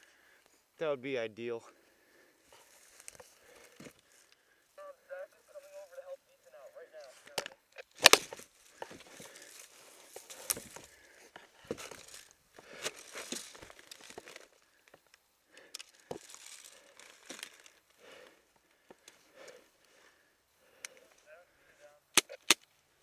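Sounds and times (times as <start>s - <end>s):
rustling and crunching in brush: 7.9s - 14.8s, 15.8s - 18.0s.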